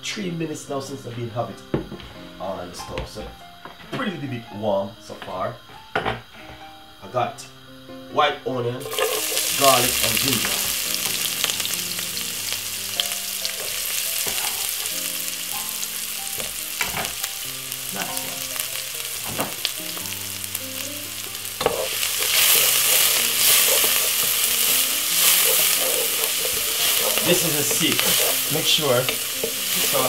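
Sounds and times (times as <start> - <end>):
onions sizzling in hot oil: 8.7 - 30.0
wooden spoon stirring: 8.8 - 15.2, 21.6 - 30.0
oil popping: 8.8 - 30.0.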